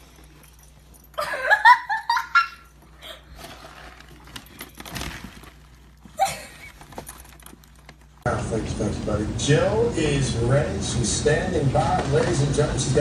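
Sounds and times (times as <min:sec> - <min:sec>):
person giggling: 0:01.2 - 0:03.3, 0:06.1 - 0:06.8
rustling: 0:02.7 - 0:08.2.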